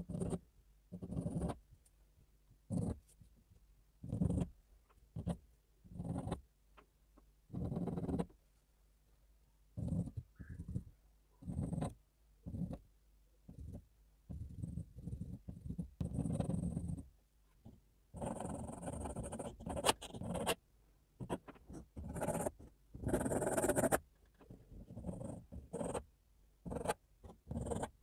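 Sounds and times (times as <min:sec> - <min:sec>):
pencil scratching on board: 0:00.0 - 0:01.6, 0:02.7 - 0:03.2, 0:04.0 - 0:06.4, 0:07.5 - 0:08.4, 0:09.8 - 0:20.6, 0:21.2 - 0:26.1, 0:26.7 - 0:28.0.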